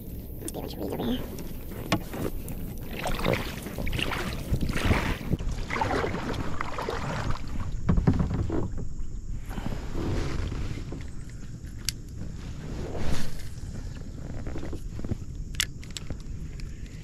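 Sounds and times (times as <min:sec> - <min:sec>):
wind rumble on microphone: 0:00.0 - 0:17.0
water splashing around kayak: 0:01.2 - 0:11.1.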